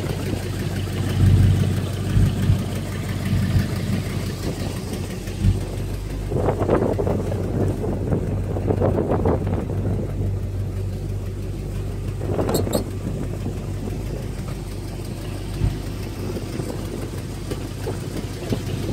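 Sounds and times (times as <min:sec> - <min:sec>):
car engine idling: 0:00.0 - 0:18.9.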